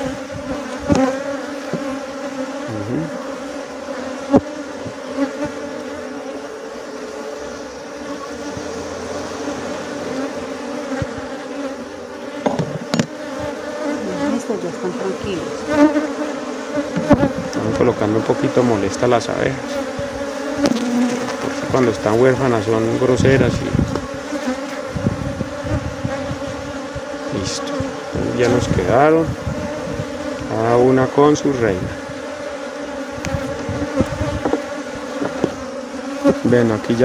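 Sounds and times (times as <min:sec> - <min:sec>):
bees humming: 0:00.0 - 0:37.0
tool knocking on hive boxes: 0:00.4 - 0:02.0, 0:04.3 - 0:05.3, 0:10.9 - 0:11.4, 0:12.3 - 0:13.6, 0:16.8 - 0:17.7, 0:19.7 - 0:21.8, 0:23.8 - 0:24.6, 0:33.2 - 0:36.5.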